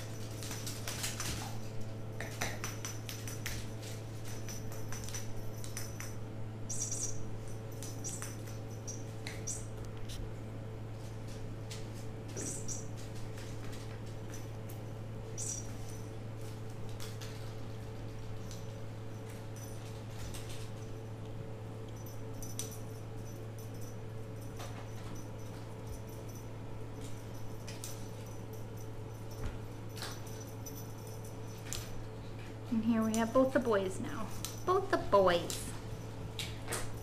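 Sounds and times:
paws tapping on wooden floor: 0.0 - 6.2
steady low hum: 0.0 - 37.0.

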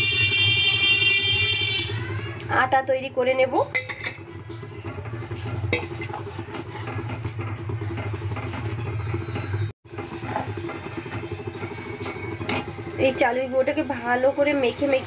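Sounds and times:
spatula scraping dough in pan: 4.8 - 11.7.

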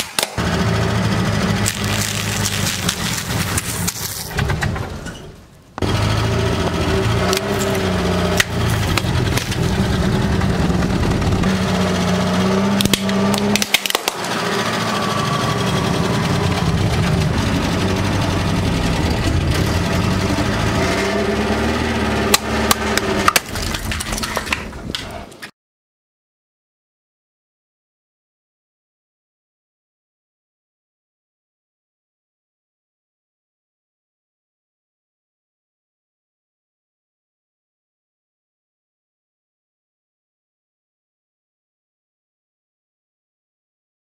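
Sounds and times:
sharp cracks and crunches: 0.0 - 0.4, 1.5 - 4.8, 7.3 - 9.8, 12.8 - 14.4, 22.3 - 25.5
car engine running slowly: 0.4 - 25.3
tyre crushing plastic: 1.6 - 4.7, 7.3 - 9.8, 12.8 - 14.2, 22.7 - 25.0.

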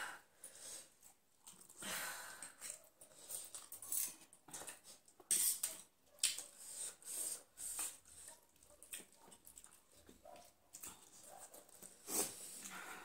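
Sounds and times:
noodles being slurped: 2.4 - 10.2, 10.8 - 12.9
person chewing: 2.4 - 12.8.

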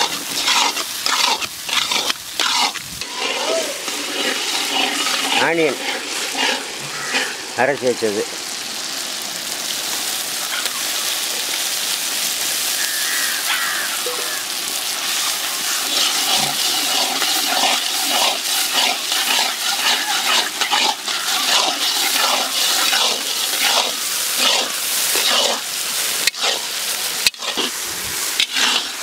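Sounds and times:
metal ladle scraping a pan: 0.0 - 7.5, 15.1 - 29.0
onion paste sizzling in a pan: 0.0 - 29.0.

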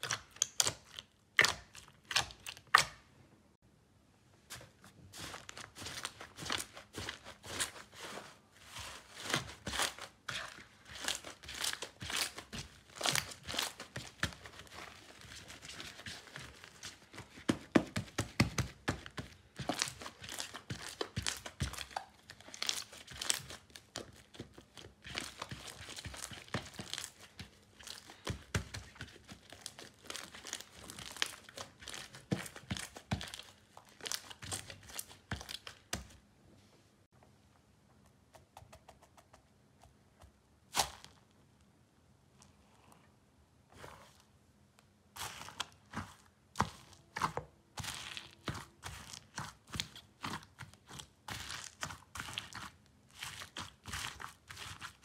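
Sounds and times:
hands squeezing slime: 0.0 - 3.0, 4.6 - 36.1, 45.2 - 55.0.

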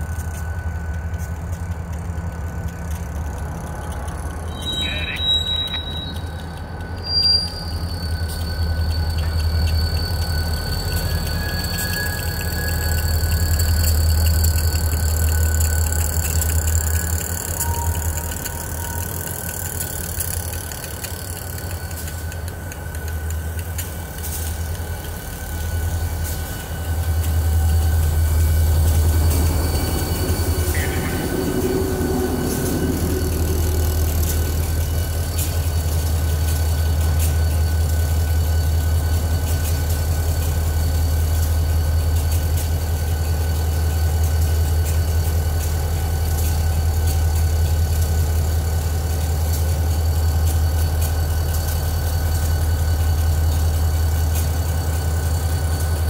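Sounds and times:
diesel locomotive engines droning: 0.0 - 56.0.

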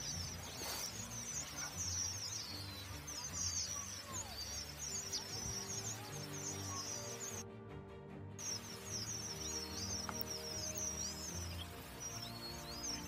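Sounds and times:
finches twittering: 0.0 - 7.4, 8.4 - 13.0
background music low notes: 0.0 - 13.0.

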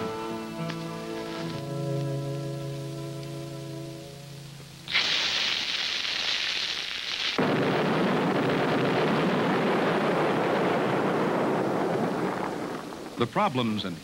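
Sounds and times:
fuse hissing: 0.2 - 7.4.

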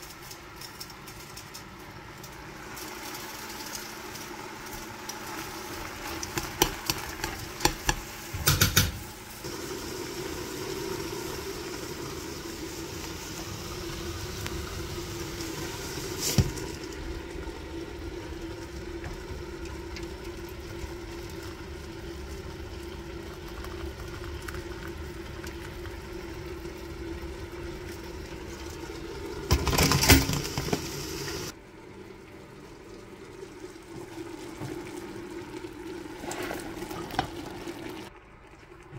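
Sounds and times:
liquid being poured: 9.4 - 38.9.

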